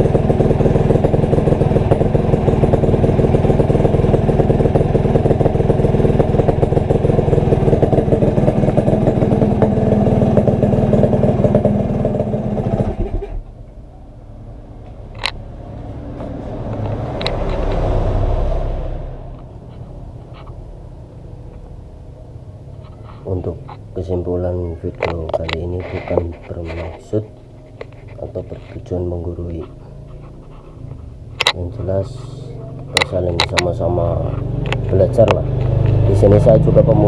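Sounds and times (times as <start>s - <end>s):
two-stroke engine running: 0.0s - 13.5s, 31.3s - 37.0s
low rumble: 1.5s - 21.9s.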